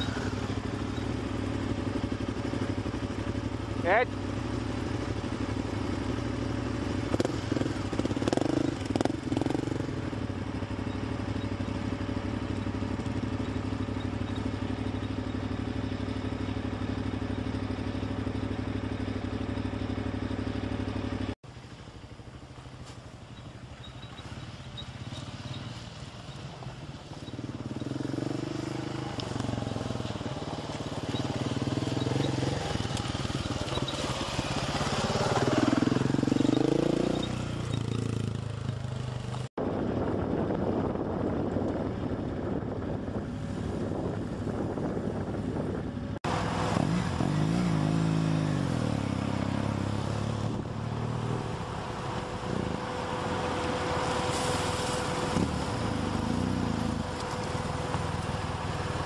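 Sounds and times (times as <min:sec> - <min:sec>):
motorcycle engine idling: 0:00.0 - 0:28.1
motorcycle approaching on gravel: 0:00.0 - 0:59.0.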